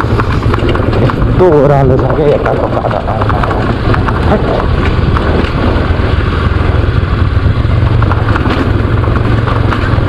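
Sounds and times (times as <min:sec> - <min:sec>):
motorcycle engine rumble: 0:00.0 - 0:10.0.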